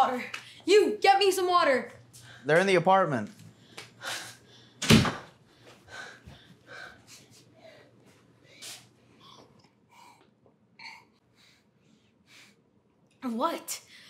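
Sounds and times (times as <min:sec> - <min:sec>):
person breathing hard: 0:05.4 - 0:10.3.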